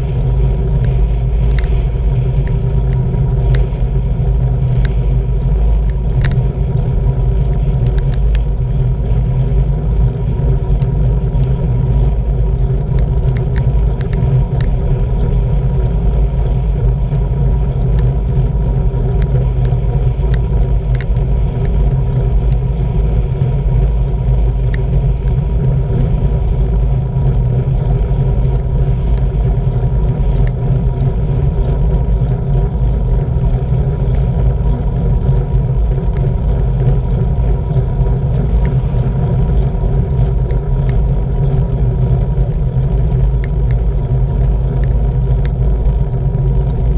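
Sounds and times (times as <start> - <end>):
bike road noise: 0.0 - 46.9
wind buffeting microphone: 0.0 - 46.9
faint clicks: 5.7 - 6.5, 19.1 - 21.8.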